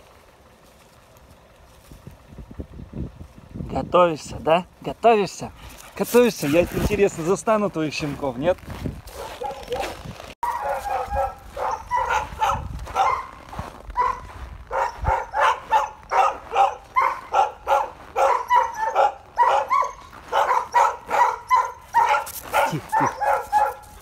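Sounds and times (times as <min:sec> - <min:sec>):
dog barking fast: 0:09.1 - 0:24.0.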